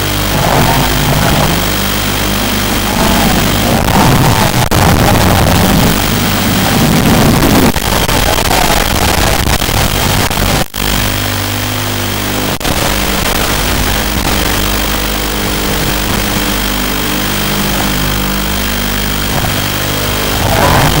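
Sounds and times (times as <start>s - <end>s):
quadcopter motor whine: 0.0s - 10.2s, 10.8s - 21.0s
video link hiss: 0.0s - 21.0s.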